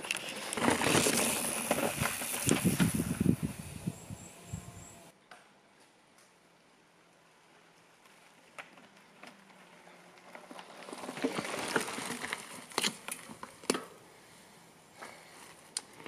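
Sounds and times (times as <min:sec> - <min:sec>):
bike tyres crunching over soil: 0:00.0 - 0:04.9, 0:07.8 - 0:13.8.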